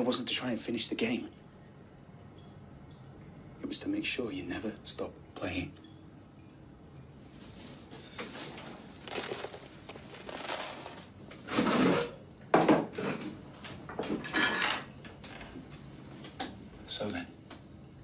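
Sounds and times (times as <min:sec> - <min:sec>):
metal chain rattling and clinking: 0:09.0 - 0:11.2, 0:14.3 - 0:14.9.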